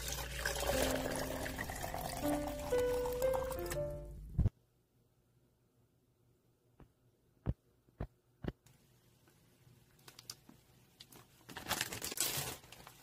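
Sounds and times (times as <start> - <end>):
water boiling in a pot: 0.0 - 2.2
light crinkling and clicking: 9.9 - 13.0.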